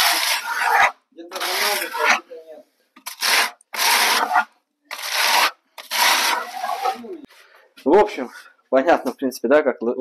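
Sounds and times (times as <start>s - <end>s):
hand tool scraping wall facing: 0.0s - 2.3s, 3.0s - 7.2s.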